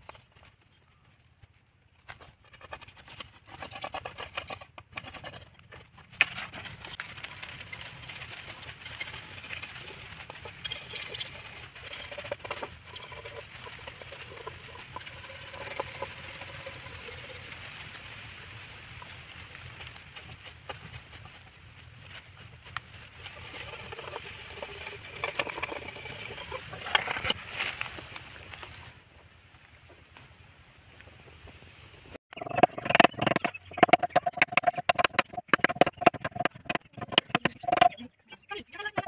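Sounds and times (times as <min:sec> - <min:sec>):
knife scraping bamboo: 0:02.1 - 0:17.4, 0:19.6 - 0:28.5.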